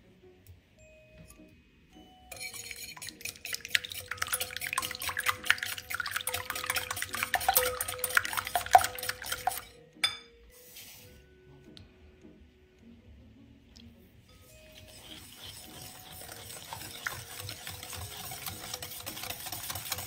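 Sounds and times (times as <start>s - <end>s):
whisk beating eggs in glass bowl: 2.3s - 9.8s, 14.6s - 20.0s
clink: 10.0s - 10.3s.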